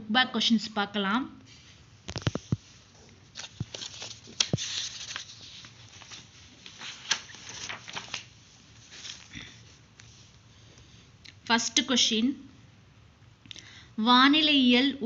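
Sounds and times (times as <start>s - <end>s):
paper pages rustling and flicking: 2.1s - 10.4s.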